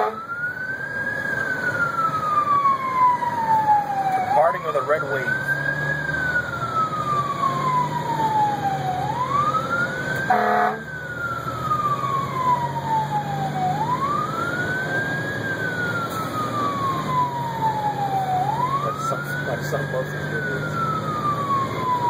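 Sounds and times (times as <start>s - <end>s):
truck horn blast: 0.0s - 0.3s, 10.3s - 10.9s
diesel engine humming: 0.0s - 22.0s
electronic siren wailing: 0.0s - 22.0s.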